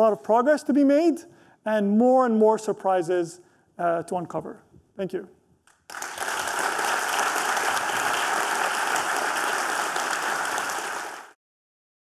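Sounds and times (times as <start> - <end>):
audience applauding: 5.8 - 11.4.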